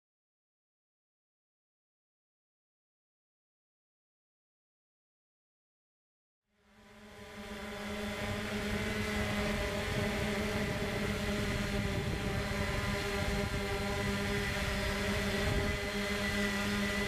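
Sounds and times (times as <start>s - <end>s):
drone propellers humming: 6.6s - 17.0s.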